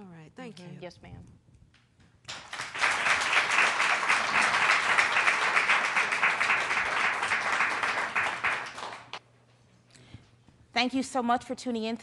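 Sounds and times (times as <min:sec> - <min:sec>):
crowd applauding: 0:02.3 - 0:09.2.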